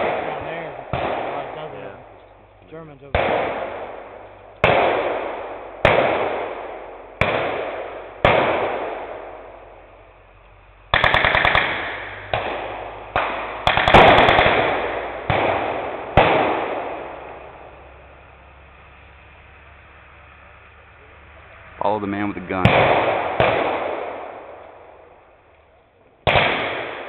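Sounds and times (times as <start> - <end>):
blank gunshots echoing: 0.0 - 2.2, 3.0 - 9.9, 10.9 - 17.8, 22.1 - 25.5, 26.2 - 27.0
automatic gunfire bursts: 10.9 - 16.9, 26.2 - 27.0.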